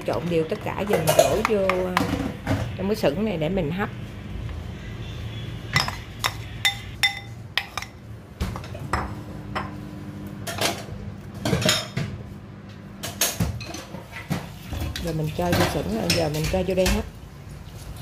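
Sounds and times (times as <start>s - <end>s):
spoon scraping ceramic bowl: 5.8s - 8.0s.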